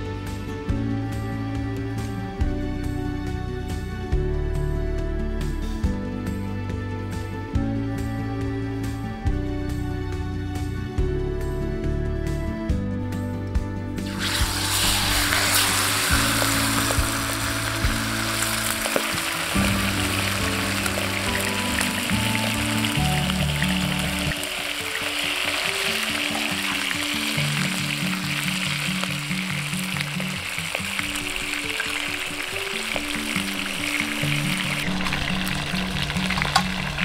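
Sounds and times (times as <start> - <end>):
background music: 0.0 - 37.0
fish sizzling in hot oil: 14.0 - 37.0.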